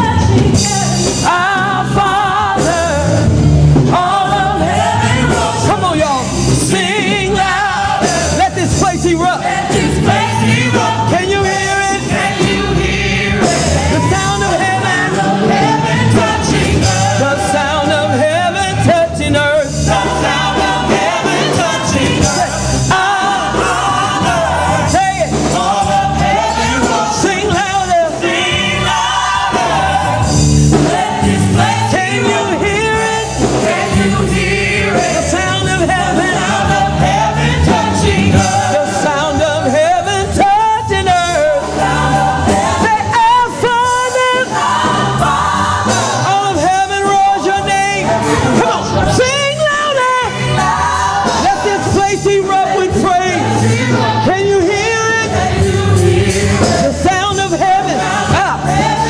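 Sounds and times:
woman singing lead: 0.0s - 3.1s
backing vocalists singing: 0.0s - 59.0s
musical backing: 0.0s - 59.0s.

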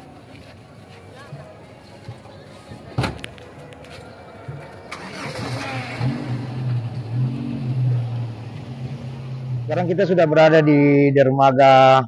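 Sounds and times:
vehicle engine starting and idling: 4.4s - 10.3s.

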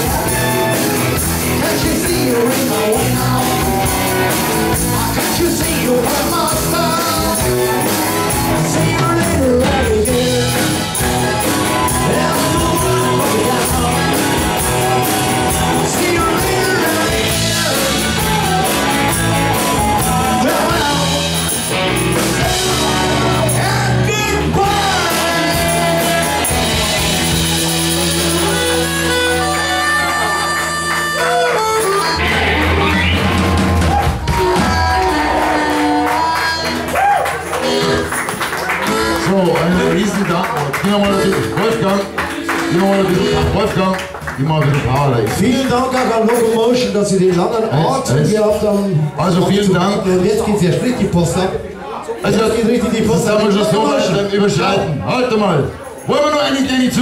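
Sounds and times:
person singing: 0.0s - 40.0s
electric guitars: 0.0s - 47.3s
drums: 0.0s - 47.7s
bass guitar: 0.0s - 57.0s.

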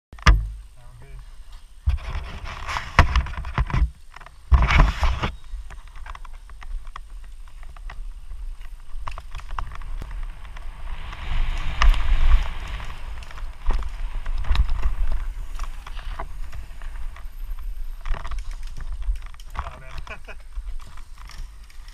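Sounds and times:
wind rumbling on microphone: 0.2s - 21.9s
bike rattling and clicking: 1.5s - 21.9s
tyres hissing on loose dirt: 4.3s - 18.9s.

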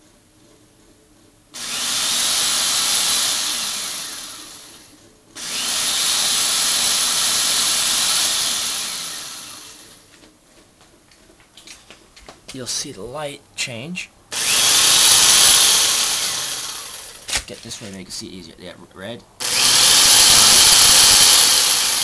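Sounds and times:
electric drill running: 1.6s - 10.1s, 14.3s - 17.3s, 19.4s - 22.0s.

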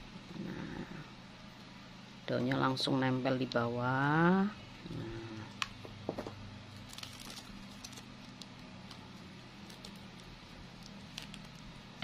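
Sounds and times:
artificial flower stems rustling: 6.7s - 12.0s.

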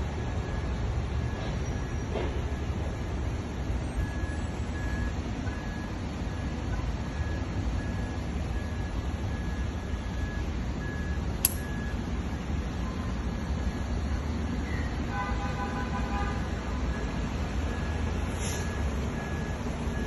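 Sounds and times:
reversing alarm beeping: 0.0s - 15.1s, 16.7s - 20.0s
sharp click: 11.4s - 11.7s.

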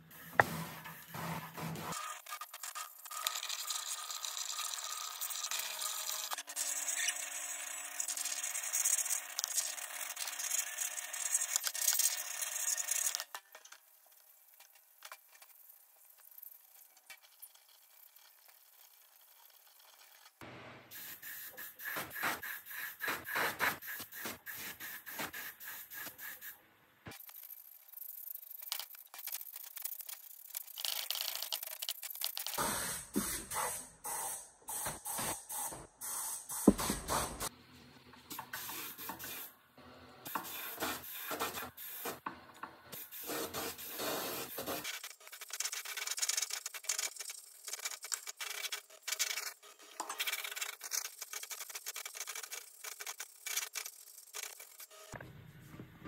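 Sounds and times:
paint spray gun hissing: 32.6s - 37.5s.

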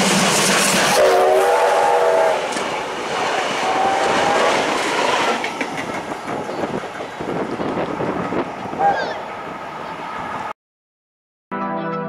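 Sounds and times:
train wheel and rail noise: 0.0s - 10.5s
multi-note train whistle: 0.9s - 2.6s, 3.6s - 4.6s, 8.8s - 9.2s.

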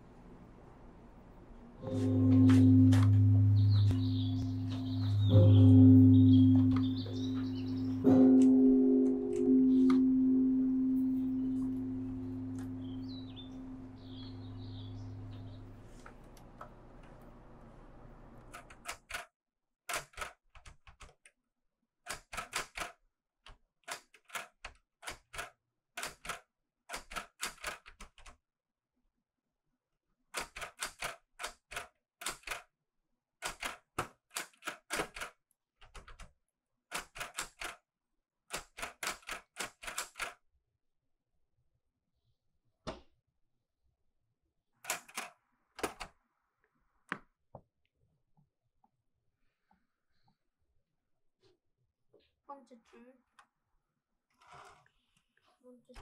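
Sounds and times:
typewriter keystrokes clacking: 18.5s - 19.3s, 19.9s - 21.2s, 22.1s - 23.0s, 23.8s - 28.4s, 30.4s - 32.6s, 33.4s - 36.3s, 36.9s - 37.8s, 38.5s - 40.4s, 44.8s - 46.1s.

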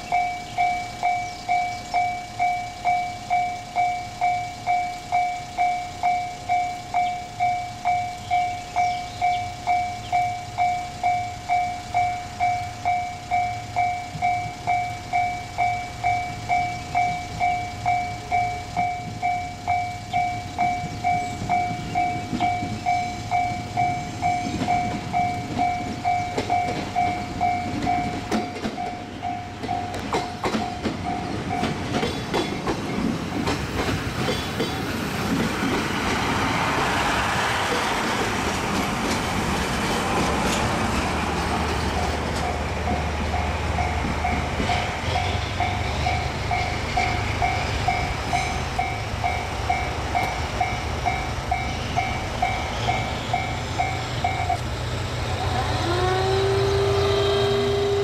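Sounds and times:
level-crossing warning bell ringing: 0.0s - 34.8s, 41.4s - 58.0s
train wheels clicking over rail joints: 0.0s - 58.0s
diesel engine running: 36.0s - 58.0s.

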